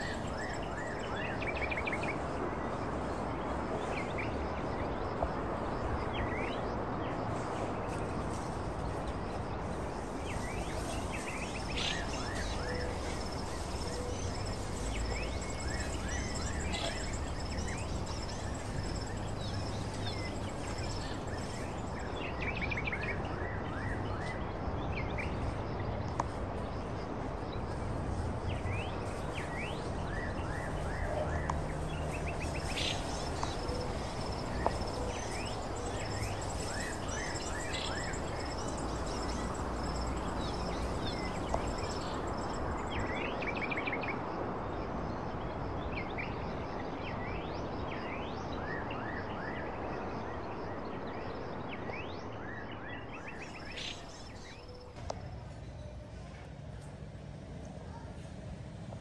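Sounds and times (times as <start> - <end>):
small birds chirping: 5.7 - 43.6.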